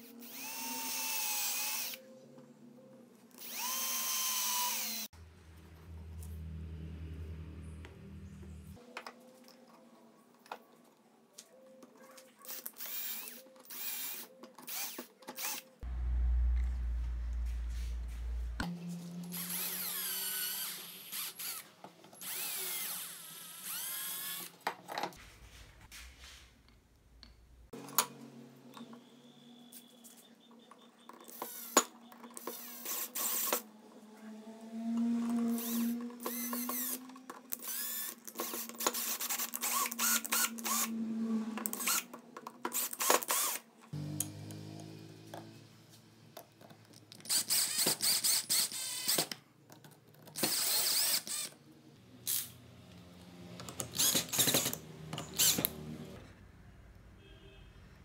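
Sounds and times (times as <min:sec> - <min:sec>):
power drill drilling into wood: 0:00.2 - 0:02.0, 0:03.4 - 0:05.1, 0:12.8 - 0:15.6, 0:19.3 - 0:21.6, 0:22.2 - 0:24.5, 0:32.5 - 0:33.6, 0:35.5 - 0:37.0, 0:37.6 - 0:40.9, 0:42.8 - 0:43.6, 0:47.3 - 0:49.2, 0:50.4 - 0:51.5, 0:53.9 - 0:55.8.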